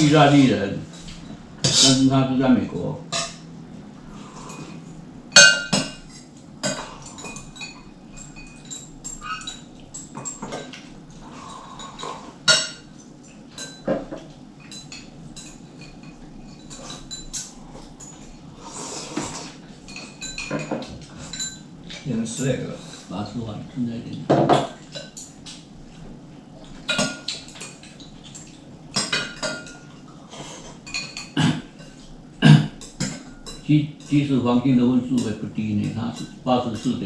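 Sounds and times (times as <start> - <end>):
chopsticks clinking on bowls: 4.3 - 18.5, 19.4 - 23.1, 35.0 - 37.0.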